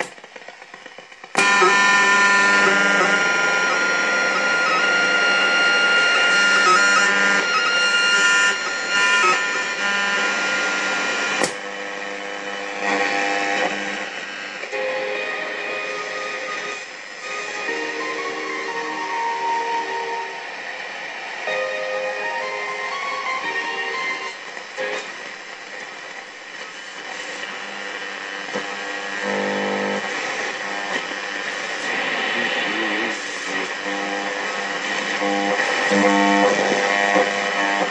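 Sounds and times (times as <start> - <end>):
radio whistling tones: 0.0 - 11.5
faint radio tones and clicks: 0.0 - 21.5, 22.3 - 37.9
radio static hiss: 0.0 - 37.9
sharp click: 11.4 - 11.6.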